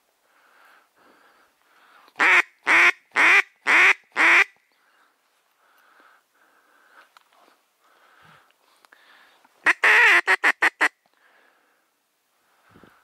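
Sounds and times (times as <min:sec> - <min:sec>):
duck quacking: 0:02.2 - 0:04.5, 0:09.6 - 0:11.0.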